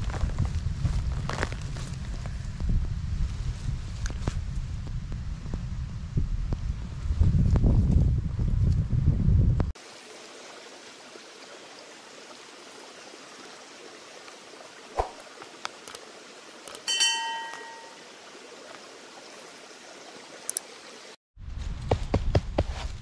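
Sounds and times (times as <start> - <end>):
bell-like notification chime: 16.9 - 18.0.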